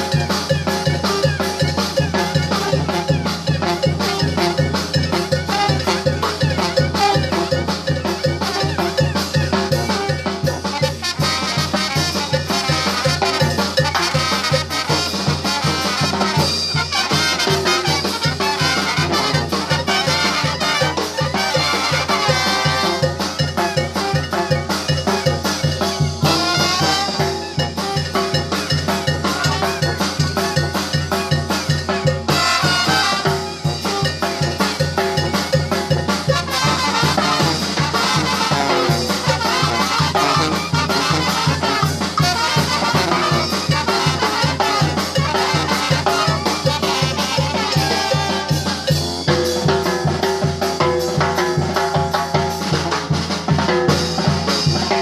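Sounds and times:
sousaphone: 0.0s - 49.7s
trumpets: 0.0s - 49.7s
trombones: 0.0s - 50.7s
bass drum with cymbal: 0.0s - 55.0s
snare drums: 0.0s - 55.0s.

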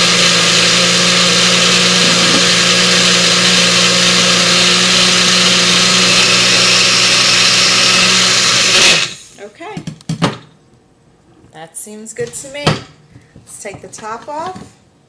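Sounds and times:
blender motor running: 0.0s - 9.2s.

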